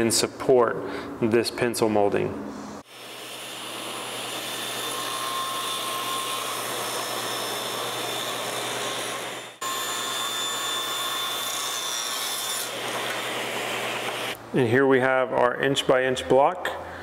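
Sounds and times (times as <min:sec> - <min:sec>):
table saw cutting wood: 0:02.8 - 0:14.4.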